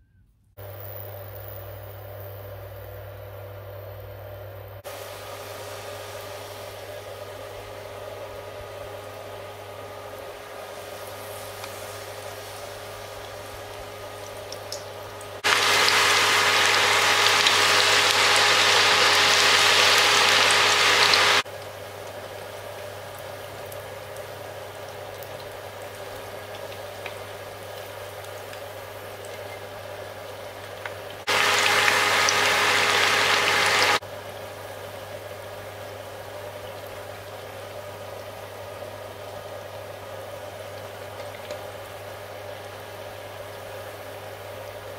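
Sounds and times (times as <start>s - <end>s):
steady hum: 0.6s - 21.4s, 31.2s - 34.0s
batter sizzling in hot oil: 4.8s - 44.9s.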